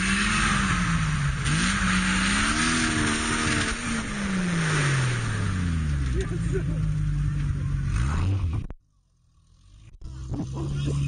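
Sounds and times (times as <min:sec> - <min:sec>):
off-road engine revving: 0:00.0 - 0:11.0.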